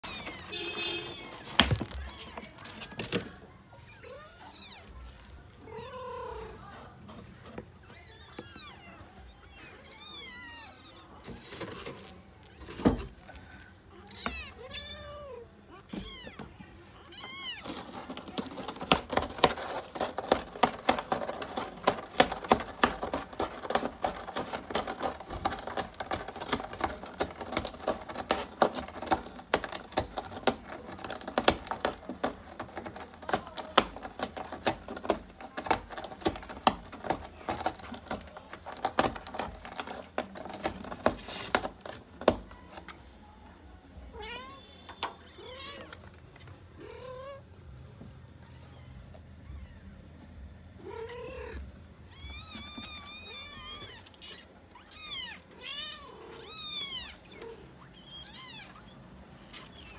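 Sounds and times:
cat scratching cardboard box: 0.0 - 3.8, 6.5 - 43.2, 51.0 - 59.9
kittens meowing: 7.8 - 11.6, 50.8 - 59.9.

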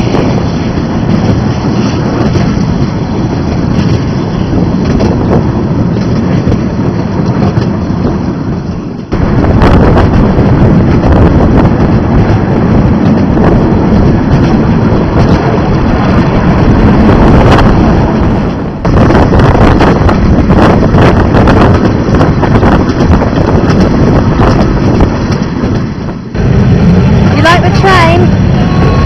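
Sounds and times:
train carriage rumbling on track: 0.0 - 29.0
wind buffeting microphone: 0.0 - 29.0.

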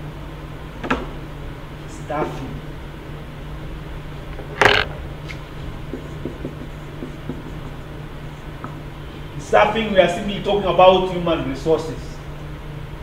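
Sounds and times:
steady low hum: 0.0 - 13.0
marker writing on whiteboard: 4.5 - 8.9.

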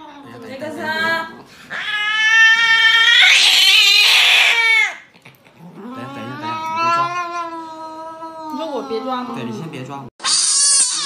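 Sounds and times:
cat yowling in distress: 1.7 - 5.0, 5.8 - 9.3, 10.2 - 11.0.

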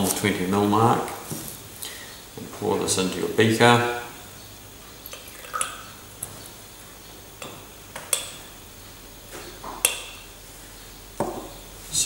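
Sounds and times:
liquid pouring: 5.1 - 6.0.

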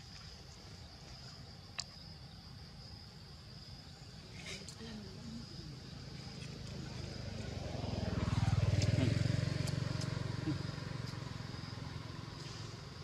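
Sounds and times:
vehicle engine passing by: 5.9 - 13.0.

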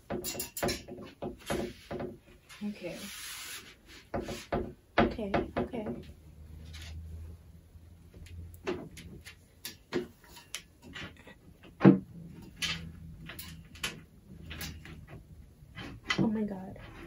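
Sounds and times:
folding table knocking: 0.0 - 2.3, 10.9 - 16.4.

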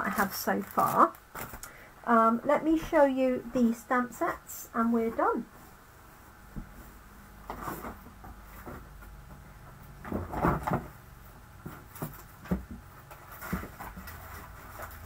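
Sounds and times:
packaging knocks and rustles: 11.6 - 15.0.

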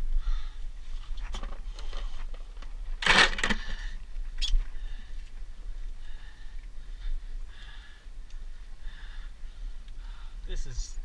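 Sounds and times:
man breathing hard: 0.0 - 0.8, 3.4 - 10.6.

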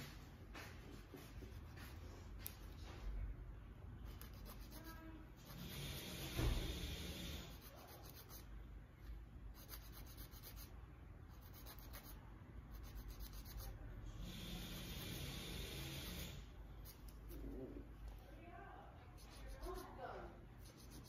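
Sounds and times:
nail file rubbing on toenail: 1.2 - 2.8, 4.1 - 8.5, 9.5 - 17.6, 19.2 - 20.0, 20.6 - 21.0.

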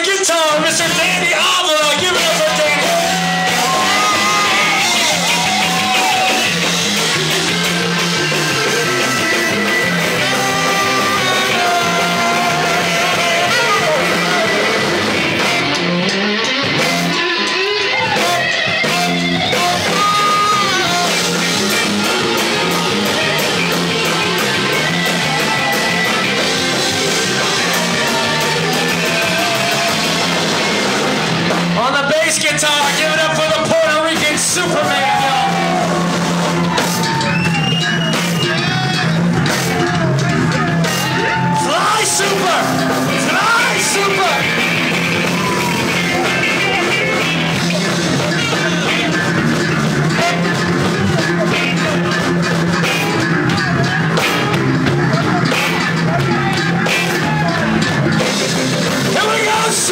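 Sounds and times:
drums: 0.0 - 59.9
keyboard: 0.0 - 59.9
electric guitar: 0.8 - 59.9
person singing into microphone: 10.1 - 14.6.

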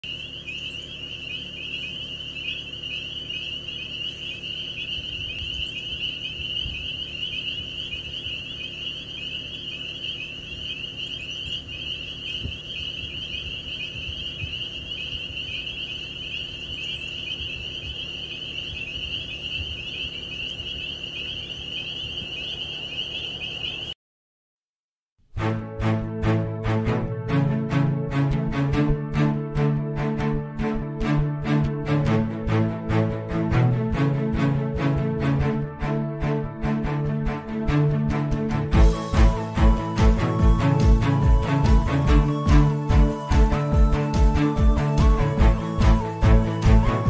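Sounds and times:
frogs calling in chorus: 0.0 - 23.9.

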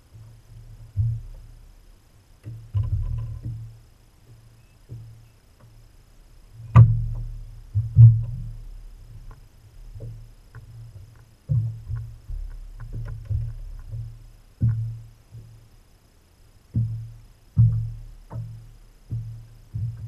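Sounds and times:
knocks on boat deck: 2.4 - 3.7, 6.7 - 8.6, 9.2 - 15.5, 16.7 - 20.0.

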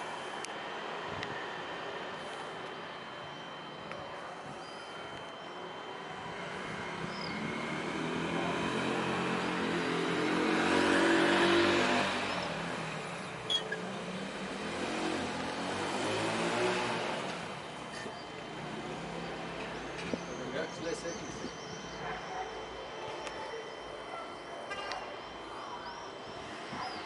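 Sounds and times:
vehicle engine passing: 6.4 - 17.8.

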